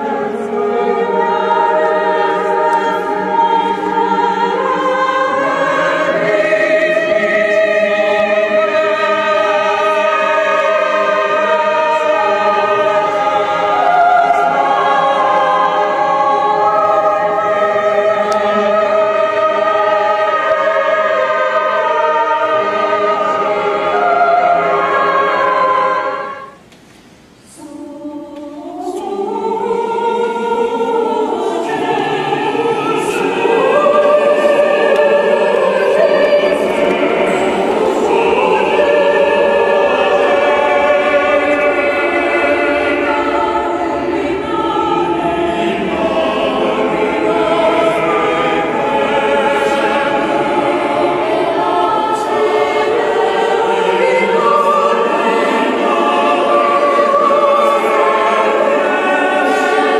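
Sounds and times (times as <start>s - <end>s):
choir singing sustained chords: 0.0s - 59.9s.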